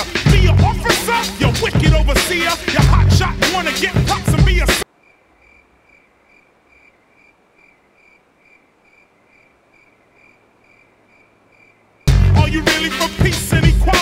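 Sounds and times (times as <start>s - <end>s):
cricket chirping: 4.8s - 12.1s.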